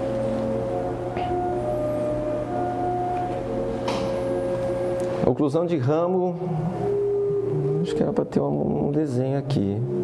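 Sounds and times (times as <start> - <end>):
hum of held tones: 6.0 - 10.0.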